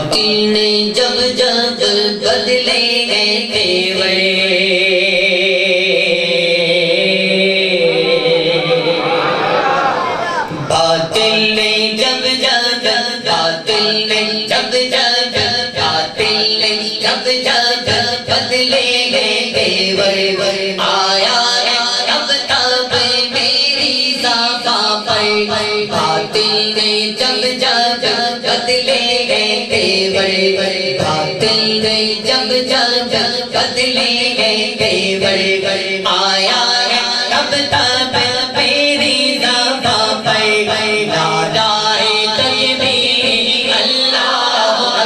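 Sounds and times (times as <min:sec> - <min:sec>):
man singing devotional song: 0:00.0 - 0:09.2, 0:10.5 - 0:45.0.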